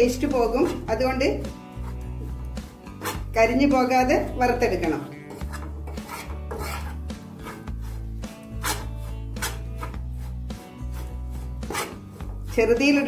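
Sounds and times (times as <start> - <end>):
background music with bass line: 0.0 - 13.0
metal spoon scraping a pan: 1.7 - 3.4, 5.2 - 13.0.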